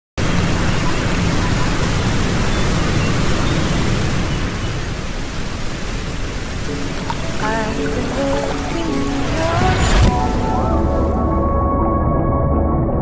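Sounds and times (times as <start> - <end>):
water rushing: 0.2 - 11.5
wind rushing: 6.7 - 11.7.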